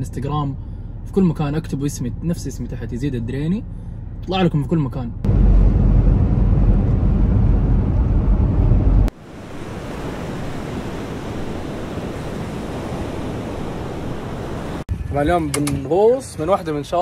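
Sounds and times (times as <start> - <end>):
car cabin road and engine rumble: 0.0 - 9.2
sea waves: 9.1 - 14.9.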